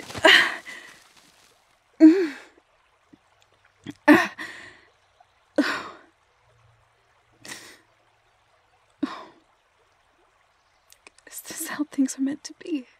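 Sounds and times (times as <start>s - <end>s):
woman sighing and gasping: 0.1s - 1.0s, 2.0s - 2.5s.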